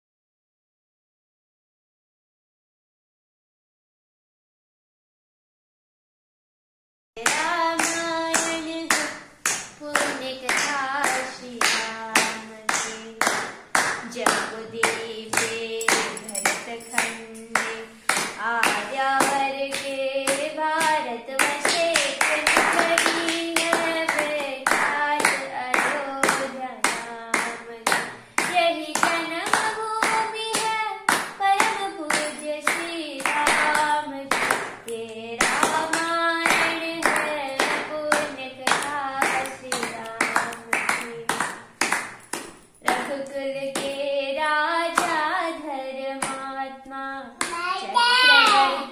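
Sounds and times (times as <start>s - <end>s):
hand claps: 7.2s - 44.0s, 44.8s - 45.6s, 46.2s - 46.5s
person singing: 14.1s - 27.8s, 42.9s - 48.9s.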